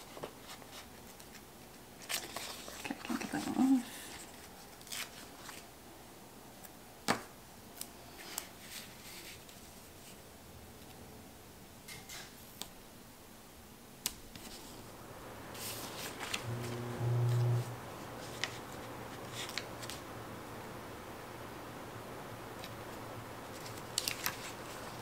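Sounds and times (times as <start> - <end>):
low hum: 14.9 - 25.0.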